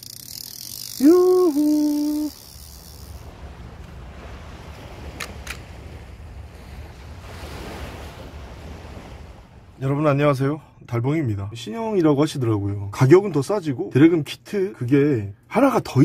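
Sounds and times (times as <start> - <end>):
held tone stepping down in pitch: 1.0 - 2.4
ocean surf rushing: 1.0 - 10.8
faint clicks: 5.1 - 5.7.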